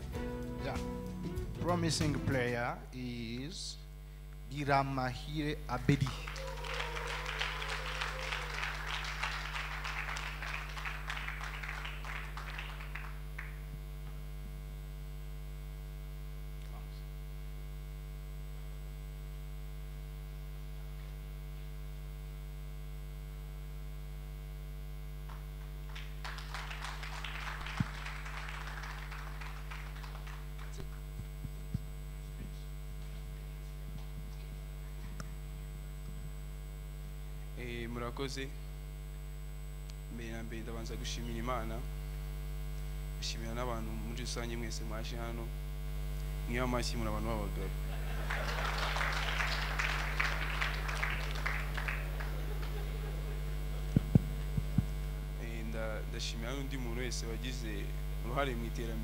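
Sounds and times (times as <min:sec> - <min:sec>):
electrical mains hum: 0:00.0 - 0:59.0
audience clapping: 0:00.3 - 0:02.6, 0:05.8 - 0:14.2, 0:25.2 - 0:31.8, 0:33.9 - 0:34.5, 0:47.9 - 0:54.9.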